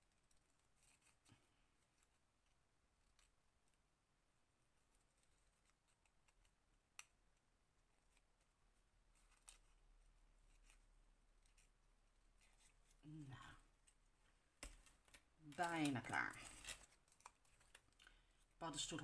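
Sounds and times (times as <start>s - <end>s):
scissors snipping paper: 14.6s - 17.9s.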